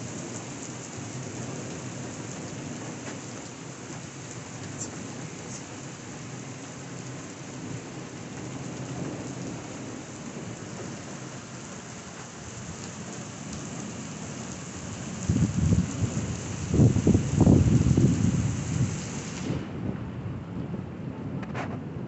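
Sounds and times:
heavy rain on wet street: 0.0 - 22.0
thunder rumble: 7.1 - 22.0.

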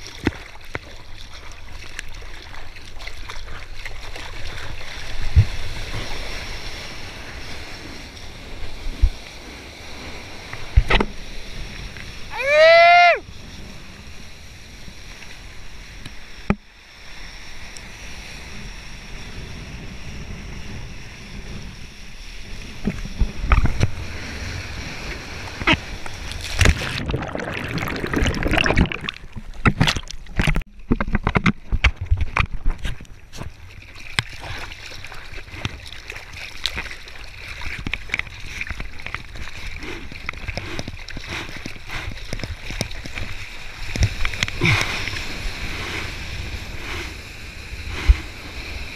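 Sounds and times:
sea water splashing: 0.0 - 12.8, 22.5 - 48.9.

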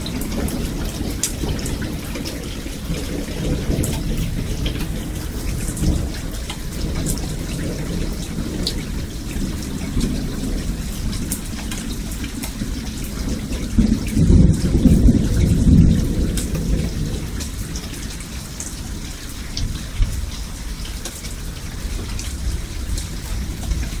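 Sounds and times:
raindrop ticks: 0.0 - 24.0
steady rain: 0.0 - 24.0
thunder rumbling: 0.0 - 24.0.

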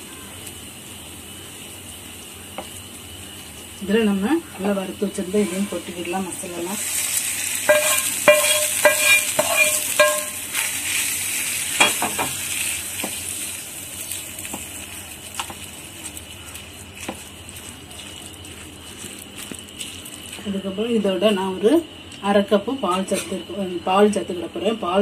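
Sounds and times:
hot oil sizzling: 0.0 - 25.0
soft stirring of rice: 1.6 - 20.8
spoon knocking on metal pan: 7.7 - 10.4
spoon clinking steel bowl: 7.7 - 10.5.

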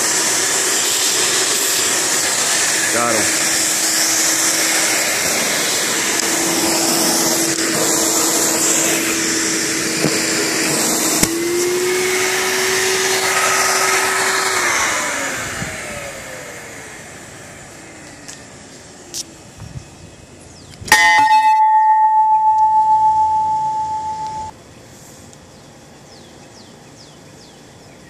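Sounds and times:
vacuum cleaner motor humming: 0.0 - 18.4.

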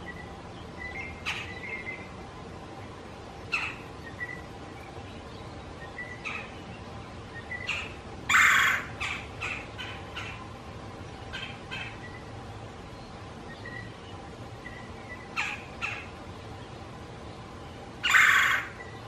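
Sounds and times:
woodpecker harsh calls: 1.0 - 2.0, 3.5 - 4.5, 7.5 - 10.5, 11.2 - 12.3, 14.8 - 16.2, 18.0 - 19.0.

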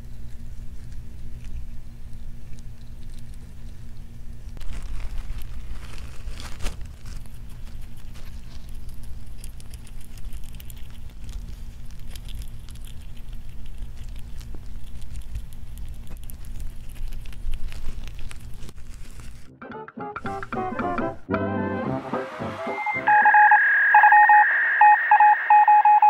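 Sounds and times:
low steady hum: 0.0 - 19.5
rat gnawing food: 0.0 - 19.5.

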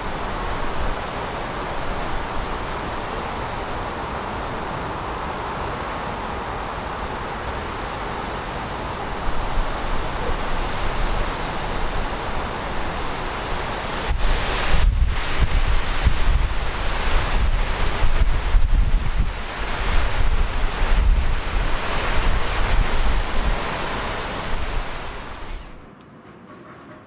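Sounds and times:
distant city traffic: 0.0 - 14.5, 20.4 - 27.0
wind buffeting microphone: 0.0 - 25.9.

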